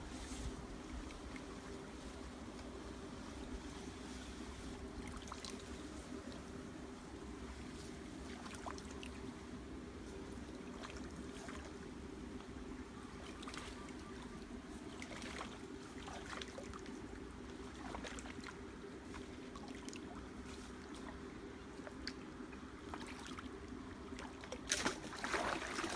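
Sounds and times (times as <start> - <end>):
steady low hum: 0.0 - 25.9
water swishing around wading legs: 0.0 - 25.9
small splashes and clicks: 21.8 - 23.5, 24.2 - 25.9.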